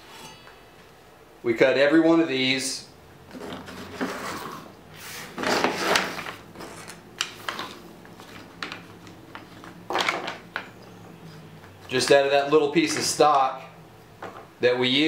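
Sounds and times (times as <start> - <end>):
wood pieces scraping on metal: 3.3 - 7.7.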